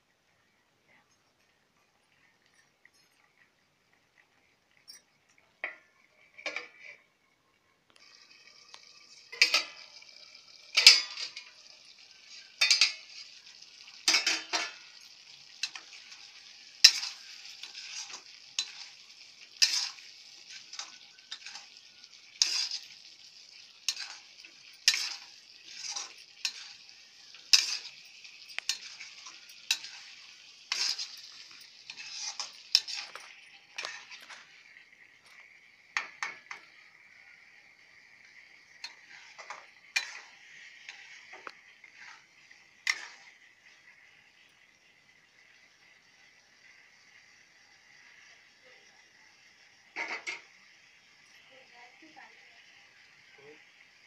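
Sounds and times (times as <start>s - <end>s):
food sizzling in oil: 1.2s - 7.3s, 7.9s - 54.0s
metal ladle scraping a pan: 5.6s - 7.2s, 9.0s - 34.6s, 38.7s - 43.4s, 49.9s - 50.5s.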